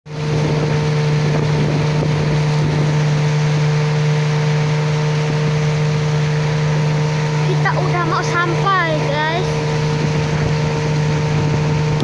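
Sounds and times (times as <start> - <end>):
boat engine running: 0.1 - 12.0
water rushing past hull: 0.1 - 12.0.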